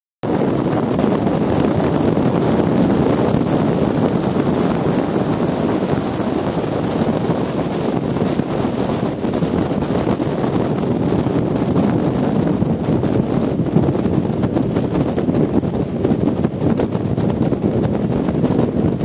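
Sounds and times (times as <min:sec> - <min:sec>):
boat running through water: 0:00.2 - 0:19.0
wind buffeting microphone: 0:00.2 - 0:19.0.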